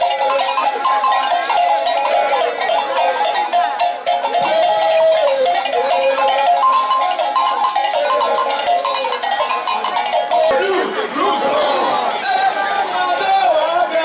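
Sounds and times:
group of people singing: 0.0 - 9.3
gourd rattles and hand percussion: 0.0 - 10.7.

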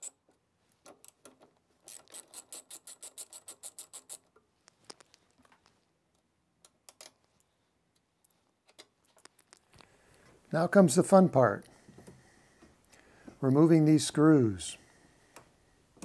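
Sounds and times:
ratchet wrench clicking: 1.9 - 4.2.

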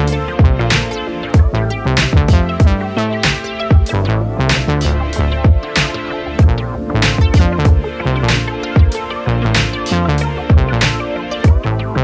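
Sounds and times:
deep kick drum: 0.4 - 0.6, 1.4 - 2.8, 5.4 - 5.7, 6.4 - 7.9, 10.5 - 10.8, 11.5 - 11.7.

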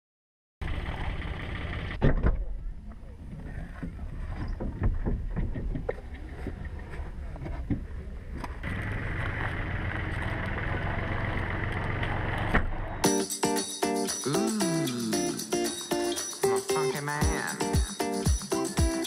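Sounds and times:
wakeboard knocking and rustling: 3.8 - 7.9.

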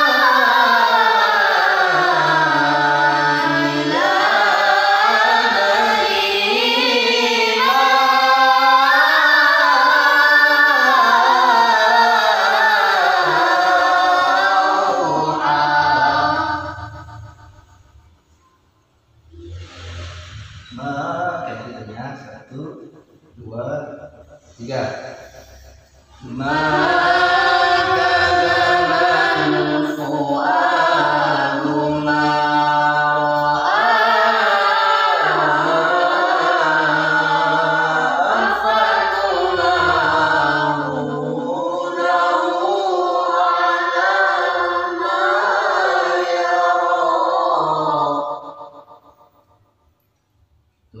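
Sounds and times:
boy reciting melodically: 0.0 - 17.6, 19.3 - 22.8, 23.4 - 48.8.

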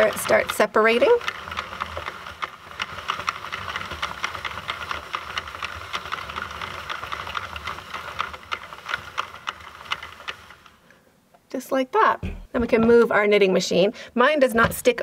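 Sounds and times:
plastic needles clicking: 0.0 - 10.8.

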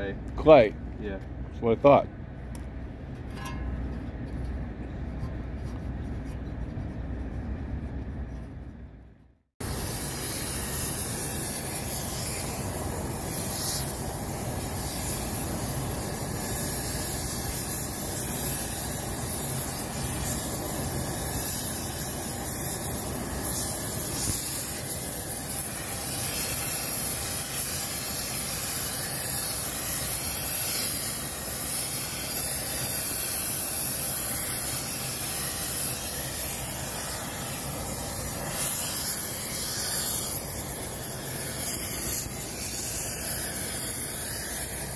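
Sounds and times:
gas torch hissing: 9.6 - 44.9.

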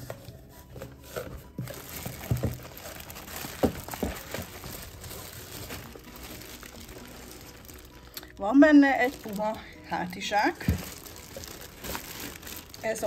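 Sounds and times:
cardboard box flaps rustling: 0.0 - 6.0
plastic bag crinkling: 0.0 - 13.0.

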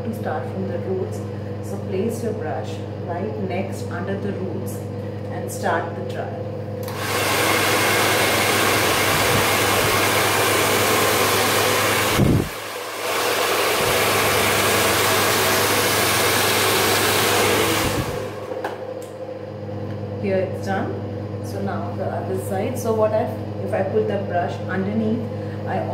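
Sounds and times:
hair dryer blowing: 6.8 - 19.5.

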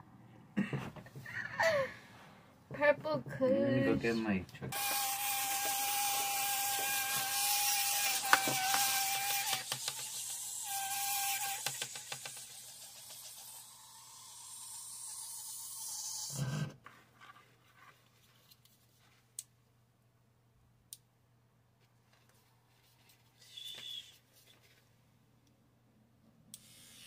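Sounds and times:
electric nail drill whining: 4.7 - 16.7, 26.6 - 27.0.

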